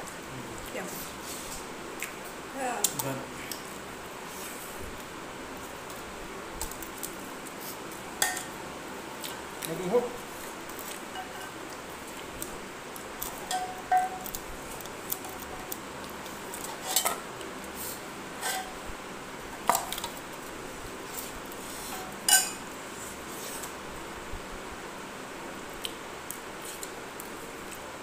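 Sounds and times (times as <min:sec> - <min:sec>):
metal spoon clinking on pot: 0:13.5 - 0:14.2, 0:22.3 - 0:22.6.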